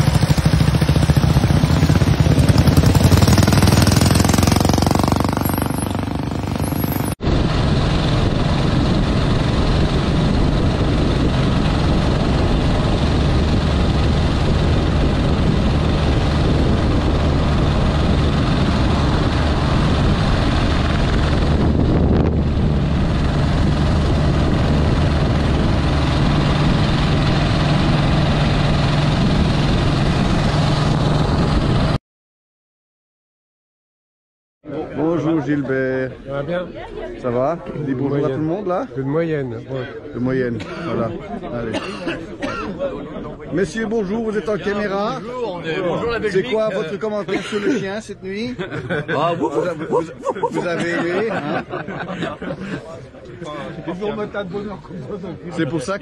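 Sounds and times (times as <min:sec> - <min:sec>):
motorcycle engine droning: 0:00.0 - 0:32.0
motorcycle passing: 0:00.0 - 0:32.0
wind noise: 0:00.0 - 0:32.0.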